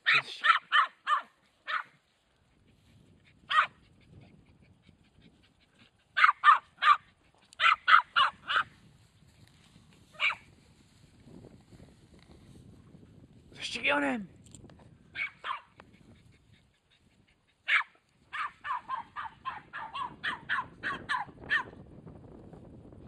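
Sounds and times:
dog yapping: 0.1 - 2.0, 3.5 - 3.8, 6.2 - 8.7, 10.2 - 10.4, 15.2 - 15.8, 17.7 - 21.7.

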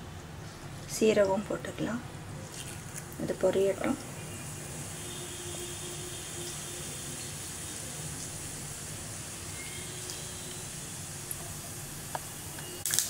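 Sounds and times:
oil sizzling in a pan: 2.4 - 13.0.

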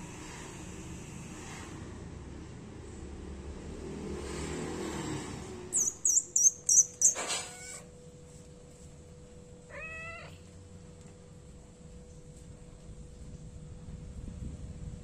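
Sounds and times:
kitten meowing: 5.8 - 7.9, 9.7 - 10.5.

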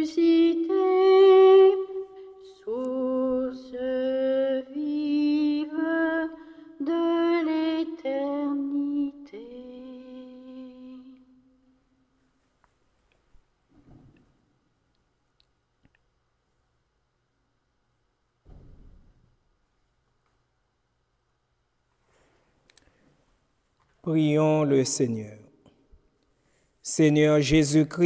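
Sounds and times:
person singing a hymn: 0.0 - 11.5.

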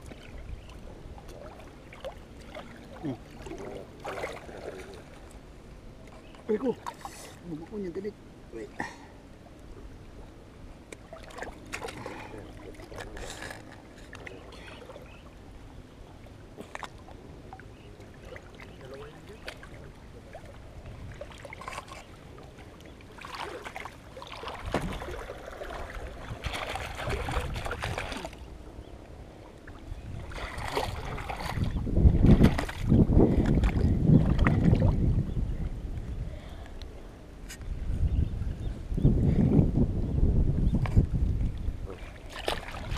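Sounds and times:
water sloshing and splashing: 0.0 - 7.8, 9.4 - 35.3, 40.8 - 42.9.

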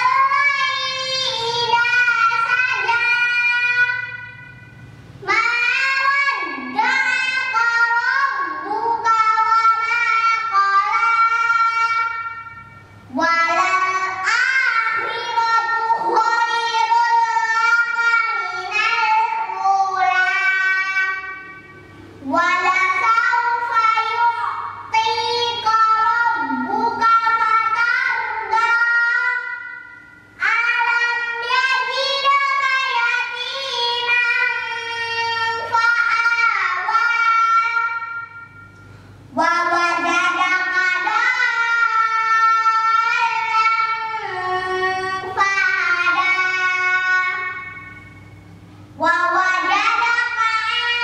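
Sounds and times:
girl chanting melodic recitation: 0.0 - 51.0.

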